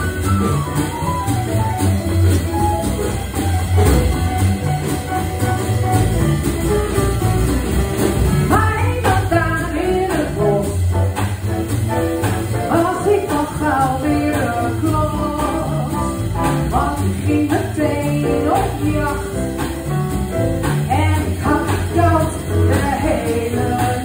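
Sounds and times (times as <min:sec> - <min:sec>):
live band playing: 0:00.0 - 0:24.0
woman singing: 0:08.5 - 0:10.9, 0:12.6 - 0:19.4, 0:20.8 - 0:24.0.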